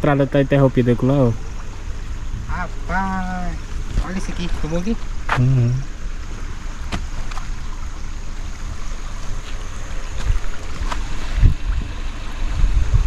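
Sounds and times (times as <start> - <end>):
car rumbling over rough road: 0.0 - 13.0
car thumping over bumps: 3.6 - 13.0.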